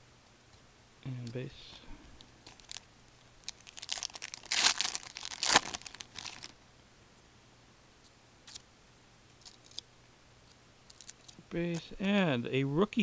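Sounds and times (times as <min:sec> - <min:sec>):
card pack wrapper tearing and crinkling: 0:02.4 - 0:02.8, 0:03.4 - 0:06.6, 0:09.4 - 0:09.8, 0:10.9 - 0:11.4.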